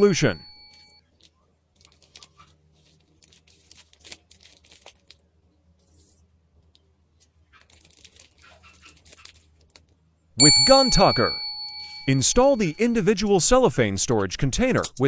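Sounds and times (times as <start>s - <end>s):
plastic bag crinkling: 1.8s - 5.3s, 7.6s - 9.8s.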